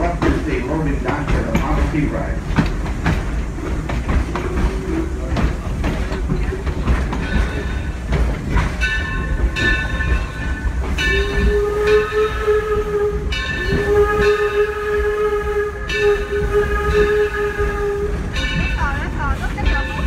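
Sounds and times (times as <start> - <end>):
train rumbling on rails: 0.0 - 20.0
steam whistle blasts: 11.0 - 18.6.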